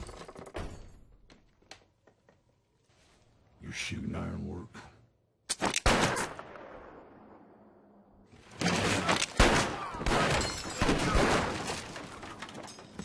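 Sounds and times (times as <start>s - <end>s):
shattering and crashing: 10.0s - 13.0s.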